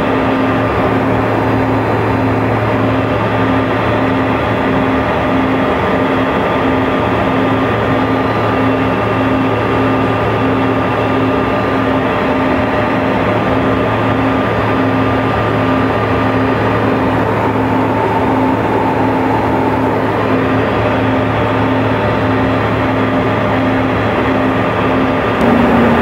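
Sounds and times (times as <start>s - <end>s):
jet cabin noise: 14.4s - 23.3s, 25.4s - 26.0s
low pulsing hum: 15.3s - 22.4s, 25.4s - 26.0s.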